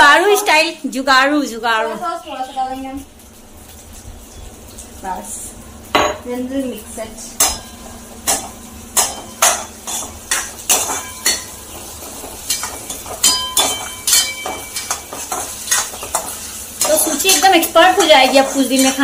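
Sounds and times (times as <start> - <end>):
spatula scraping a steel wok: 9.0 - 19.0.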